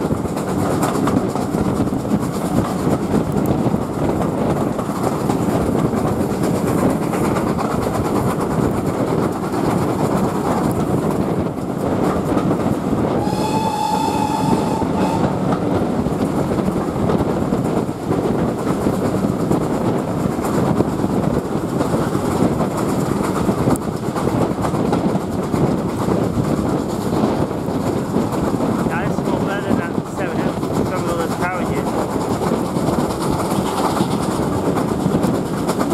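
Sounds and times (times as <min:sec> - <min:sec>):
train coach rumbling on rails: 0:00.0 - 0:35.9
steam locomotive whistle: 0:13.2 - 0:15.4.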